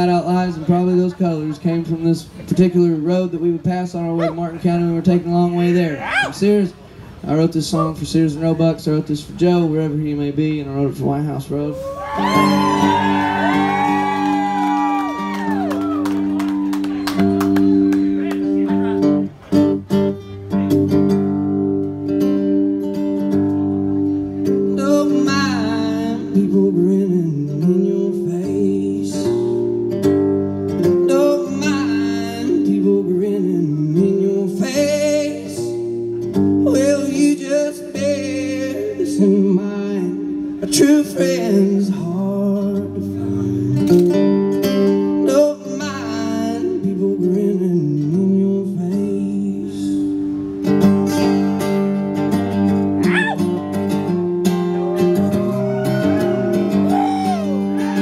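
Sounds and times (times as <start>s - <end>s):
acoustic guitar playing: 0.0s - 58.0s
man singing into a microphone: 24.7s - 29.6s, 31.0s - 35.8s, 36.6s - 44.0s, 45.1s - 50.2s, 55.1s - 58.0s.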